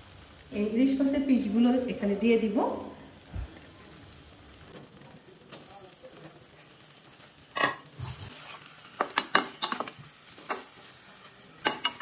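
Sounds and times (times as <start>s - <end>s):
faint sizzle from pan: 0.0s - 12.0s.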